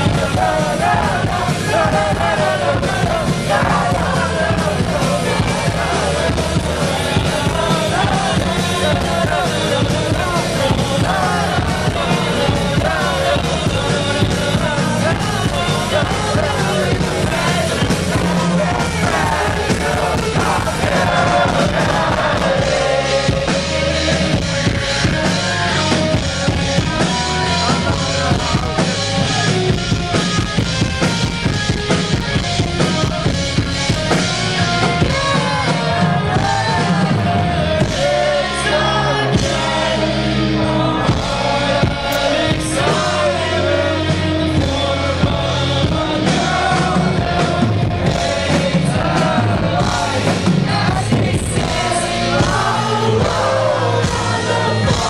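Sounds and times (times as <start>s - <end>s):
person singing: 0.0s - 30.4s
rock band playing: 0.0s - 55.0s.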